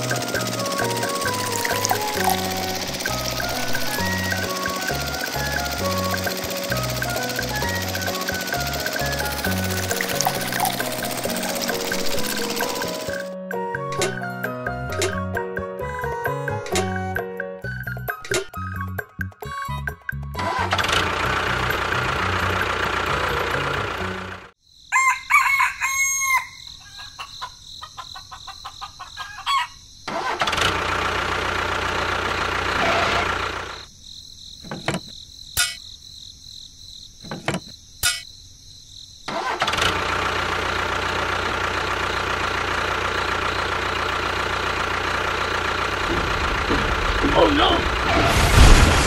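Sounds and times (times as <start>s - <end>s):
sharp clicks: 0.0s - 13.3s
steady engine noise: 0.0s - 17.2s, 20.4s - 24.6s, 30.4s - 33.9s, 39.4s - 49.0s
rooster crowing: 24.9s - 29.8s.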